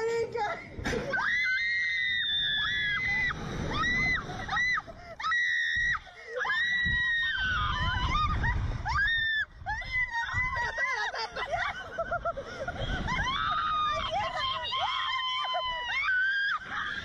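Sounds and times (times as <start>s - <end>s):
women screaming: 1.1s - 17.0s.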